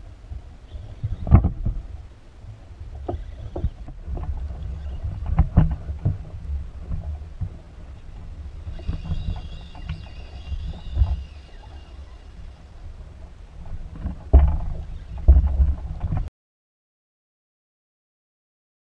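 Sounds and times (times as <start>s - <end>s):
faint high whine: 0.0s - 13.6s
water and wind rumble: 0.0s - 16.3s
knocks against kayak hull: 14.3s - 16.3s.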